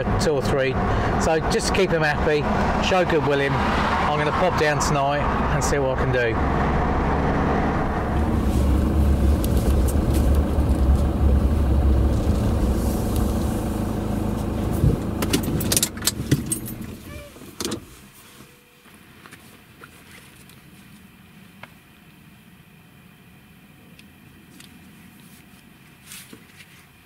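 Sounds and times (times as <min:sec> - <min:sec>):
truck low rumble: 0:00.0 - 0:18.2
sharp clicks and knocks: 0:14.8 - 0:16.8.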